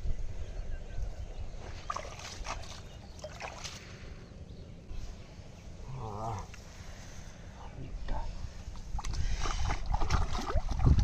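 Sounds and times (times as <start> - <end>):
water splashing and sloshing: 1.6 - 4.2, 8.6 - 11.0.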